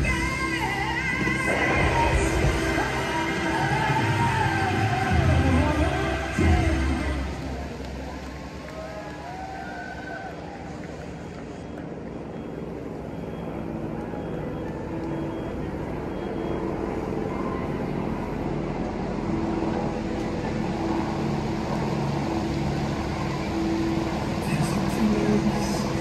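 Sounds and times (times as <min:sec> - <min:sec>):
crowd talking: 0:01.5 - 0:26.0.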